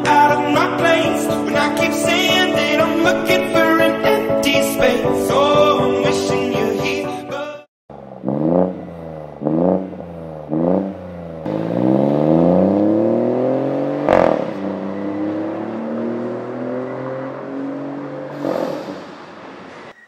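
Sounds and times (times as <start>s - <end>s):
exhaust crack at upshift: 7.9s - 16.6s
car engine revving and accelerating: 7.9s - 19.8s.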